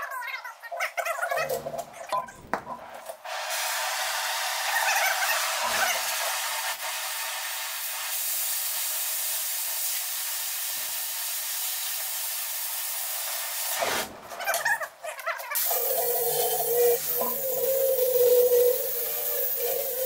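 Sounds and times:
cutting torch hissing: 3.3 - 14.2, 15.6 - 20.0.

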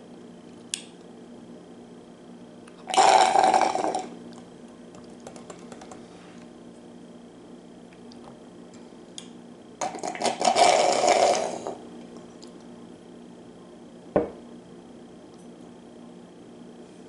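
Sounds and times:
loud crackly slurp: 2.9 - 4.1, 9.8 - 11.8
glass set down on table: 14.2 - 14.4.

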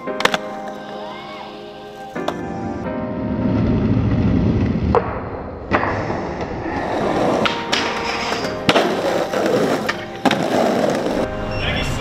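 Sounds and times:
skateboard popping and landing: 0.0 - 0.8, 3.6 - 11.3
music: 0.0 - 12.0
skateboard wheels rolling on pavement: 0.0 - 12.0.

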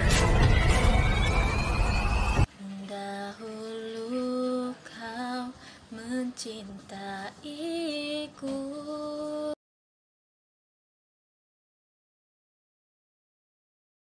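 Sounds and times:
young woman singing: 2.5 - 9.6.

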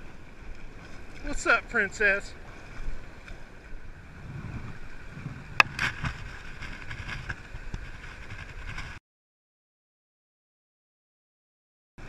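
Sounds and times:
running river water: 0.0 - 9.0
wind on microphone: 2.4 - 9.0.

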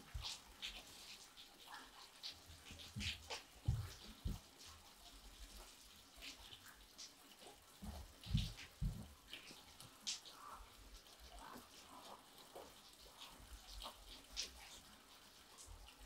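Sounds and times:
light clicks and taps: 5.5 - 10.5
dull thumps: 7.8 - 9.1.

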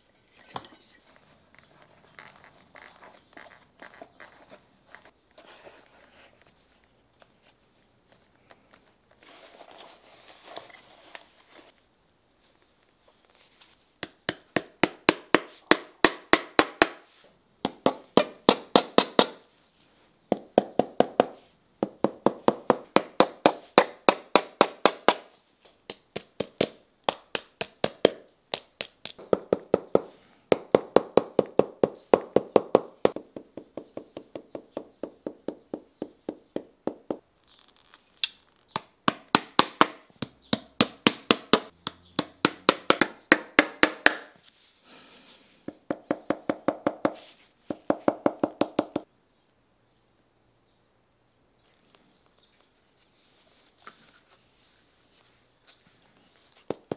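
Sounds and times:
leather rustling: 1.0 - 6.8
hammer tapping leather: 25.9 - 37.2, 38.8 - 44.3, 45.7 - 49.1.

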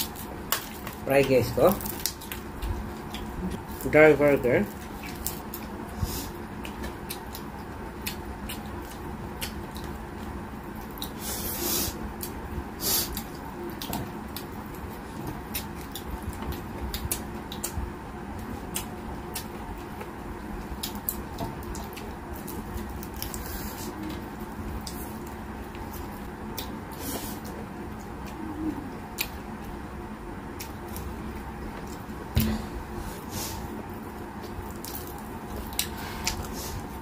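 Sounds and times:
wet chewing with lip-smacks: 0.0 - 3.8, 4.7 - 29.8, 33.9 - 37.0
faint steady hum: 0.0 - 37.0.

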